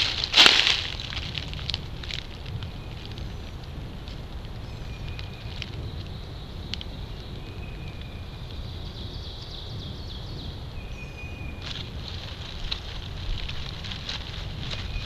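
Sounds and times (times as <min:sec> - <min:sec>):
low rumble on microphone: 0:00.0 - 0:15.0
birds whistling and chirping: 0:04.6 - 0:12.0, 0:14.6 - 0:15.0
faint clicks: 0:06.7 - 0:07.0.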